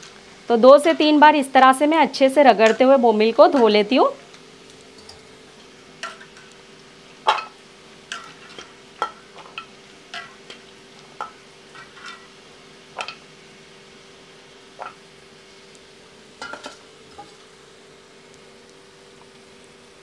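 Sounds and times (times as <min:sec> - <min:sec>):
steel plates clinking: 0:04.9 - 0:06.4.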